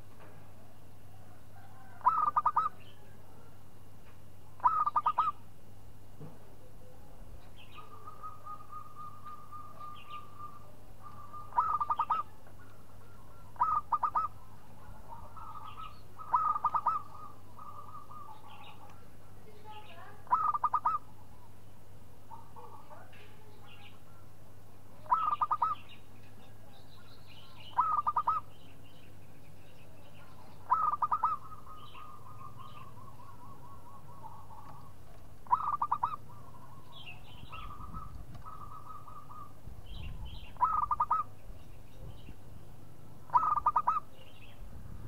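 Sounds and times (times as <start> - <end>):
dove cooing: 1.2 - 3.5, 4.6 - 5.4, 6.6 - 19.2, 19.8 - 21.2, 25.0 - 25.9, 27.6 - 28.5, 30.3 - 39.6, 40.4 - 41.4, 43.3 - 44.2.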